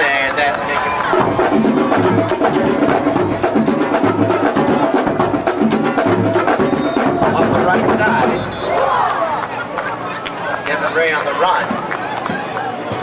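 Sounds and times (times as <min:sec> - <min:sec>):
drum-heavy band music: 0:00.6 - 0:09.2
low drum figure: 0:01.1 - 0:08.8.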